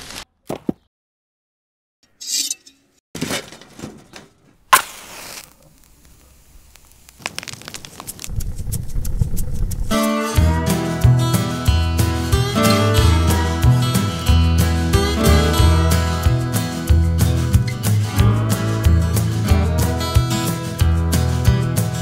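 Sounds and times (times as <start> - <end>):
fire crackling: 4.7 - 10.4.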